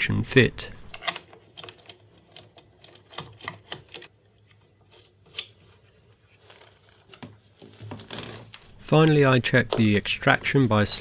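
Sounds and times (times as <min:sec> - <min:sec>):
plastic parts clicking: 0:00.9 - 0:04.2.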